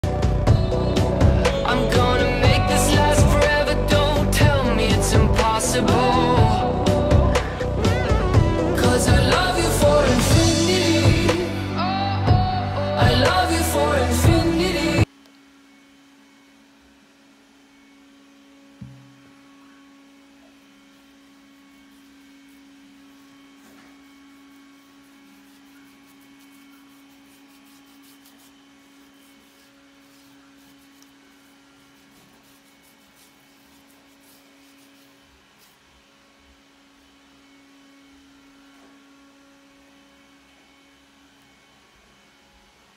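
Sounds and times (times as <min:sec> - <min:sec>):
faint electrical hum: 0:00.0 - 0:42.9
knock: 0:18.8 - 0:19.1.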